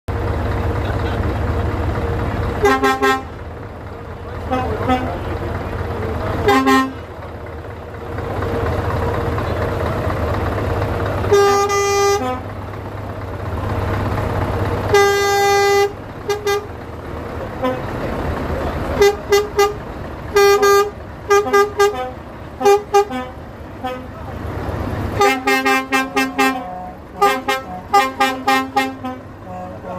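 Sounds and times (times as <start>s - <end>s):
truck engines idling: 0.1s - 29.9s
truck horn blasts: 2.4s - 3.5s, 4.4s - 5.4s, 6.2s - 7.2s, 11.2s - 12.6s, 14.8s - 16.8s, 17.5s - 18.0s, 18.9s - 24.3s, 25.1s - 29.9s.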